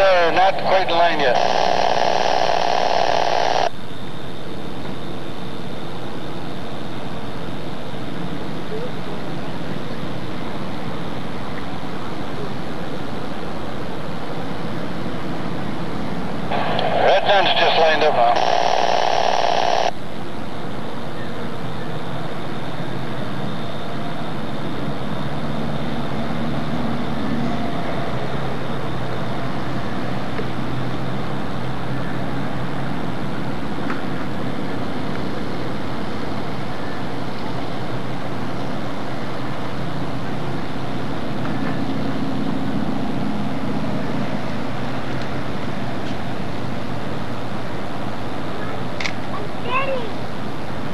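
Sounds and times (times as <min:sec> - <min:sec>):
boat diesel engines droning: 0:00.0 - 0:01.4.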